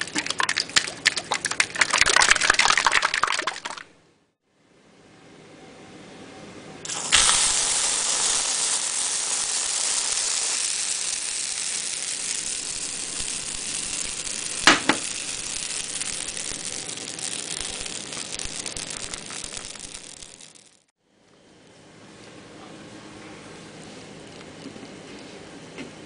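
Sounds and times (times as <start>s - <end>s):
aerosol can spraying: 6.9s - 20.8s
batter sizzling in frying pan: 6.9s - 20.9s.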